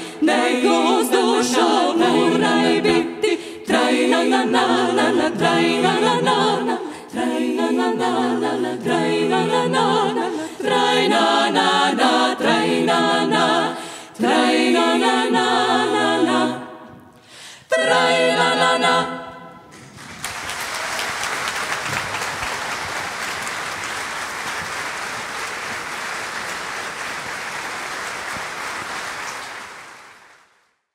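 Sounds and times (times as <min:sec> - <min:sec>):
women singing in harmony: 0:00.0 - 0:19.6
audience applauding: 0:19.7 - 0:30.6.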